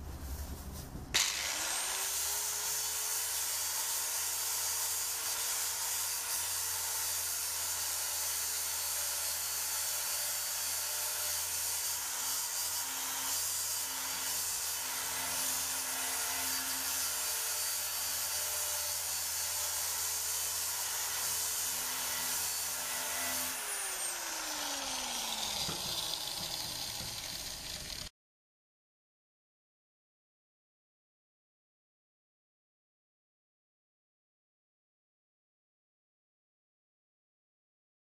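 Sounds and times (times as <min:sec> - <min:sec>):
grinder disc on wood: 0:01.1 - 0:02.2, 0:22.2 - 0:28.1
angle grinder whining: 0:01.2 - 0:03.0, 0:20.8 - 0:28.1.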